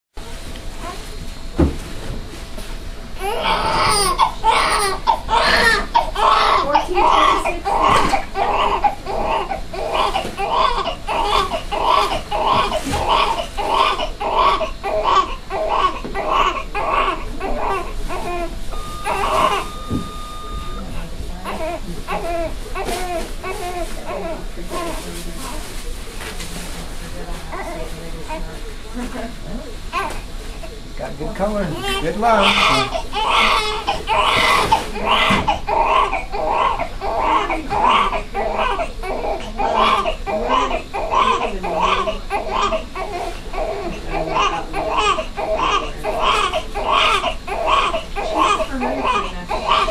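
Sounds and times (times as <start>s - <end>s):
newborn baby crying: 3.2s - 20.7s, 21.4s - 25.0s, 31.8s - 49.9s
steady high tone: 18.7s - 21.1s.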